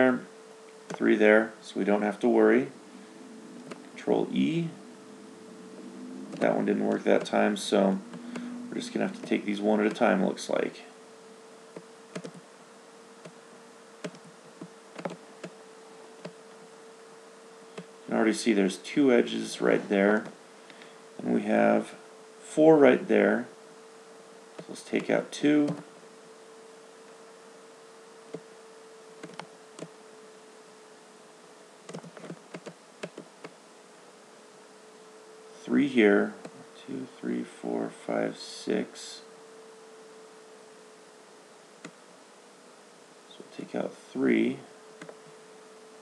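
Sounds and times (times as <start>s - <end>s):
faint electrical hum: 0.0s - 46.0s
computer mouse clicking: 11.8s - 12.4s, 14.0s - 15.6s, 29.2s - 29.9s, 31.9s - 33.6s.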